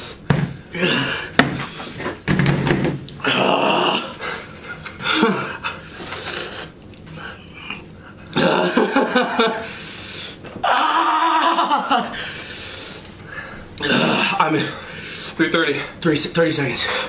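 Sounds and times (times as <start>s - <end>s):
men breathing hard and groaning: 0.0s - 2.2s, 3.2s - 15.4s
pained cries: 3.2s - 4.3s, 10.6s - 12.2s, 13.8s - 14.8s.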